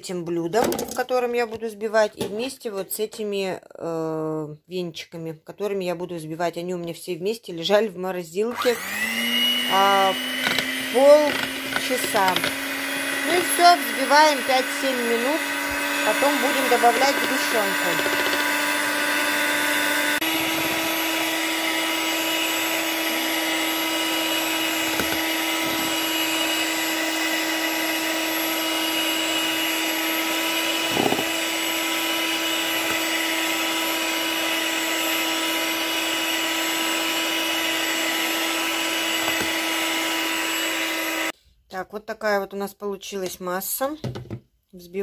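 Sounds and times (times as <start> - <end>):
electric mixer whipping cream: 8.5 - 41.4.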